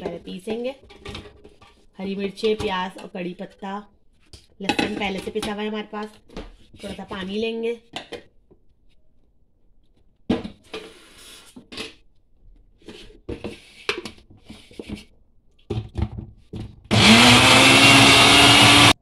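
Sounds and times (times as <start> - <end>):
electric blender running: 16.9 - 19.0.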